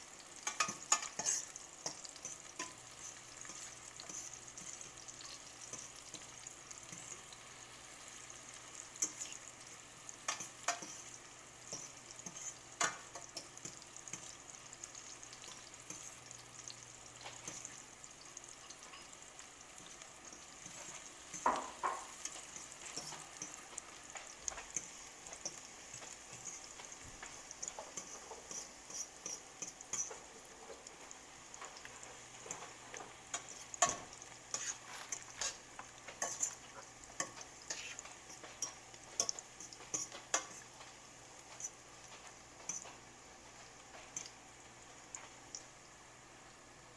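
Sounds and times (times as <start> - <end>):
vegetables sizzling in oil: 0.0 - 46.9
fork scraping a pan: 0.4 - 7.4, 10.2 - 14.3, 19.8 - 30.8, 32.4 - 40.8, 41.4 - 43.0.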